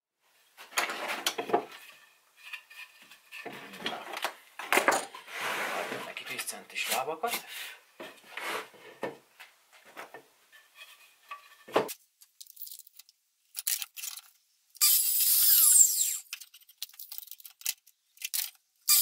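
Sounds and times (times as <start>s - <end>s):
tape measure blade whirring out: 14.8s - 16.3s, 18.3s - 19.0s.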